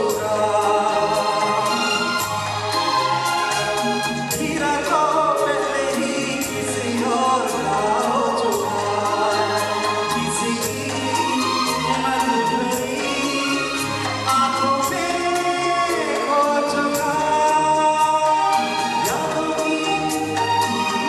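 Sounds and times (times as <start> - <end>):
man singing: 0.0 - 3.6, 4.2 - 21.0
live band playing: 0.0 - 21.0.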